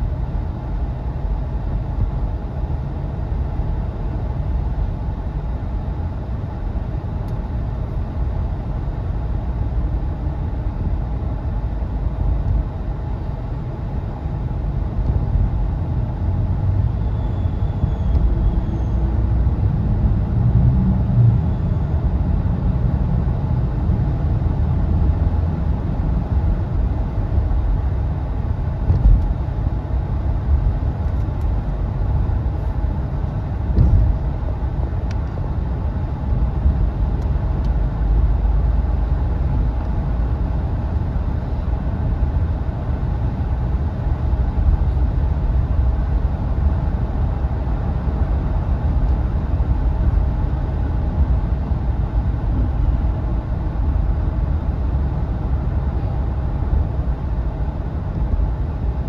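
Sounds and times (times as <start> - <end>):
car engine and road noise: 0.0 - 59.0
brief bumps: 33.7 - 34.2.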